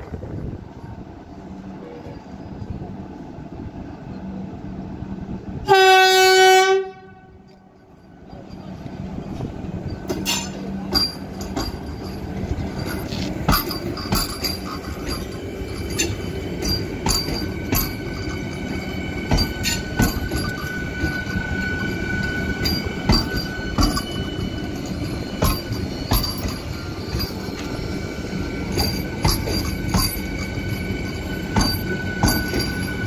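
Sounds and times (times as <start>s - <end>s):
train running rumble: 0.0s - 33.0s
train wheels clacking: 7.5s - 33.0s.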